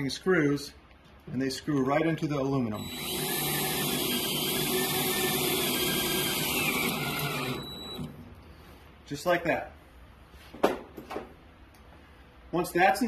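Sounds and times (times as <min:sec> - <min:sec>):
power drill whirring: 0:02.8 - 0:08.3.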